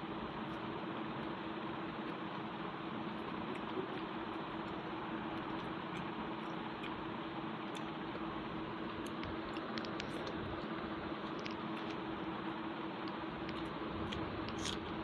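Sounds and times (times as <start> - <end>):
background hum and hiss: 0.0 - 15.0
fingers squishing food: 0.4 - 12.3, 13.0 - 15.0
chewing: 3.1 - 12.1, 13.0 - 15.0.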